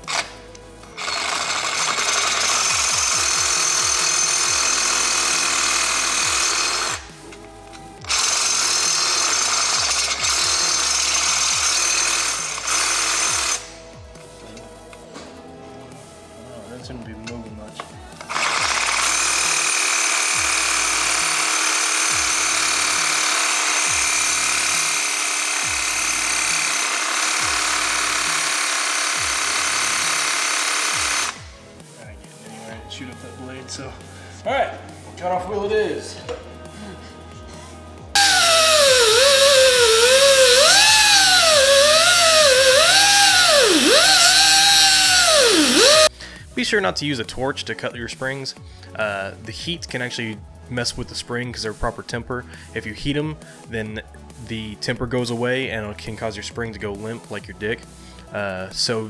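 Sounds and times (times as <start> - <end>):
reciprocating saw cutting metal: 0.9 - 7.0, 8.1 - 13.6, 18.2 - 31.4, 38.2 - 46.1.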